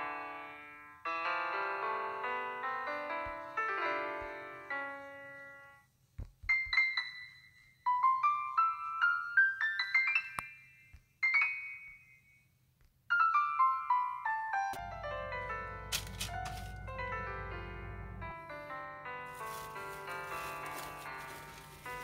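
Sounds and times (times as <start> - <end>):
keyboard music: 13.2 - 22.0.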